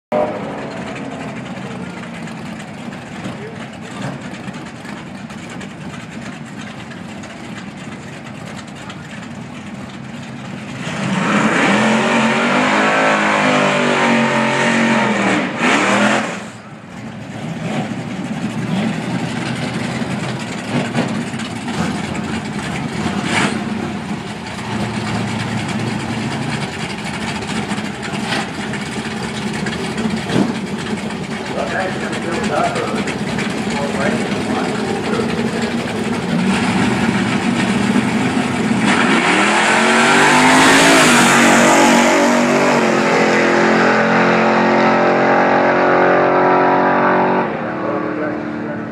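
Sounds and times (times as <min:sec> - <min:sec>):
engines idling at low revs: 0:00.1 - 0:11.1, 0:16.4 - 0:39.2
car engine revving hard: 0:10.7 - 0:16.6, 0:17.3 - 0:48.9.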